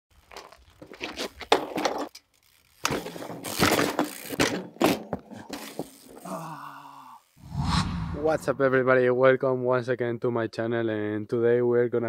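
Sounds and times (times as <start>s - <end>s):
bike knocking and scraping on ground: 0.1s - 6.3s
bike clattering as dropped: 0.3s - 6.3s.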